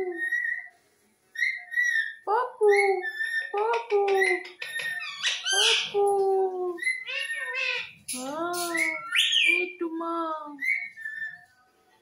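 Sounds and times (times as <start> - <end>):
parakeet chattering: 3.1 - 6.0, 6.8 - 9.6
parakeet squawk: 4.5 - 6.0, 6.8 - 9.5.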